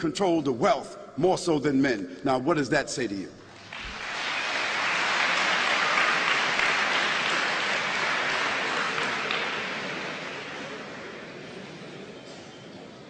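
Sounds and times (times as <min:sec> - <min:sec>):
audience applauding: 0:03.5 - 0:12.2.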